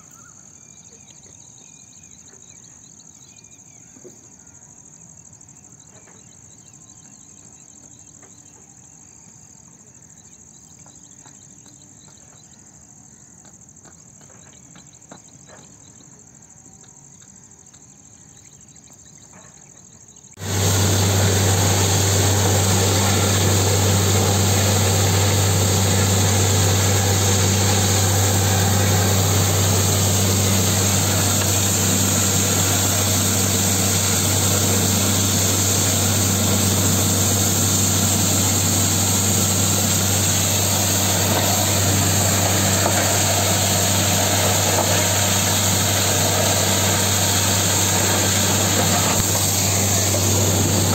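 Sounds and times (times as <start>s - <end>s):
crickets chirping: 0.0s - 50.9s
drilling rig engine hum: 20.4s - 50.9s
water gushing: 20.4s - 50.9s.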